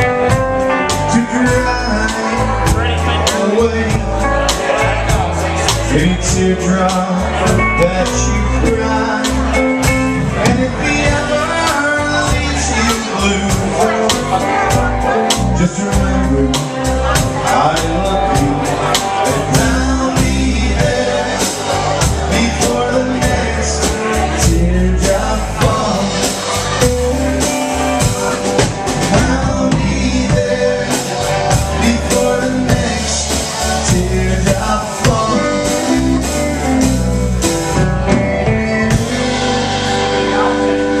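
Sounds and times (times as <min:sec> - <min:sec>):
live country band playing: 0:00.0 - 0:41.0
person singing: 0:00.0 - 0:41.0.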